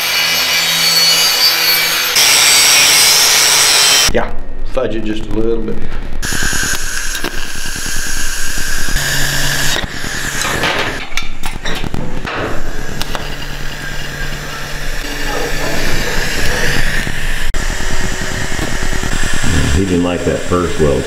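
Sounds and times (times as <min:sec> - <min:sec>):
low hum: 0:04.2 - 0:21.0
welding arc hissing and crackling: 0:06.2 - 0:21.0.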